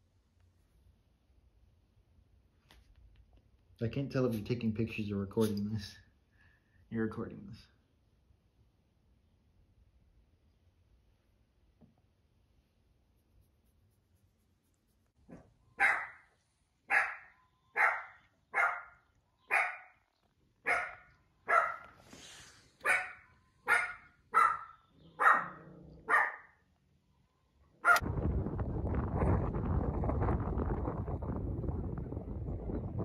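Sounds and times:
small dog barking: 0:15.3 - 0:20.0, 0:20.6 - 0:22.0, 0:22.8 - 0:26.6, 0:27.8 - 0:28.0.

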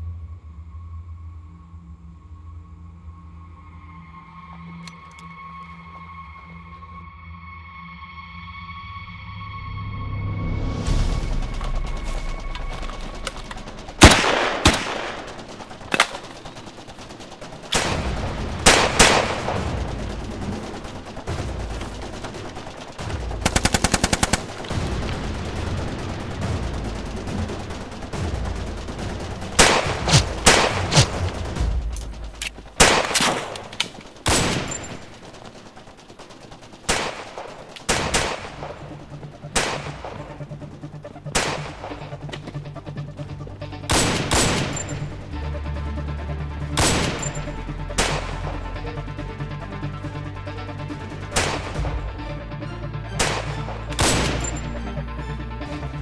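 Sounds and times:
echoing gunshots: 0:11.6 - 0:42.8, 0:43.8 - 0:45.2, 0:46.8 - 0:48.8, 0:51.3 - 0:52.1, 0:53.2 - 0:54.8
automatic gunfire burst: 0:13.0 - 0:40.4.

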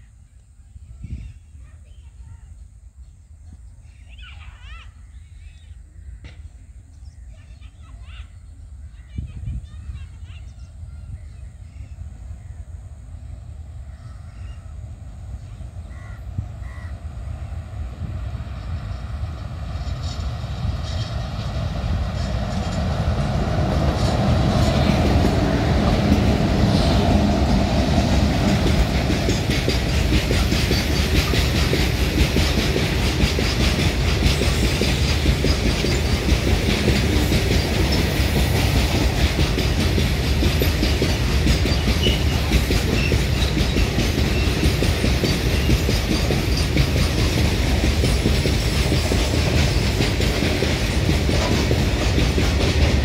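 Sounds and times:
freight train heavy rumble: 0:00.0 - 0:53.0
wagon wheels clacking on rails: 0:19.4 - 0:53.0.

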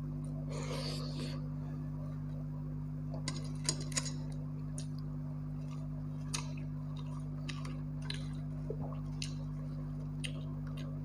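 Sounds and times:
steady low hum: 0:00.0 - 0:11.0
person chewing: 0:05.6 - 0:11.0.

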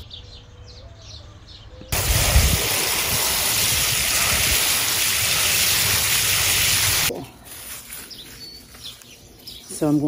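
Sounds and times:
water spray splashing: 0:02.0 - 0:07.1.

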